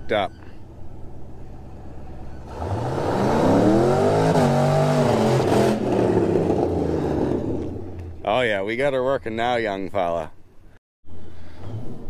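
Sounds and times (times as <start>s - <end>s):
truck engine accelerating: 0.8s - 8.3s.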